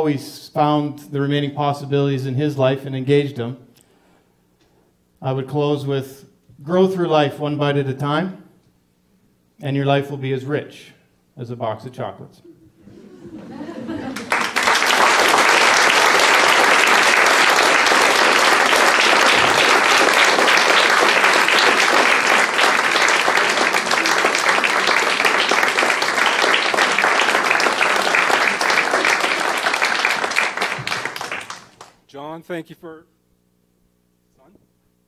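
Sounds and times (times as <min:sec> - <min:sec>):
audience applauding: 0:13.2 - 0:32.0.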